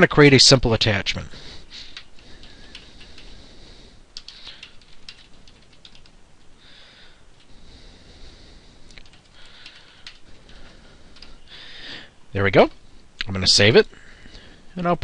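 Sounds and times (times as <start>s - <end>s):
typing on computer keyboard: 1.9s - 3.4s, 4.2s - 6.2s, 8.9s - 11.4s.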